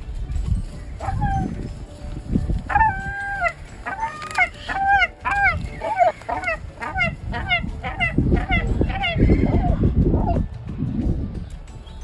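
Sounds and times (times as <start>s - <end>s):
gulls calling: 1.0s - 1.7s, 2.7s - 10.4s.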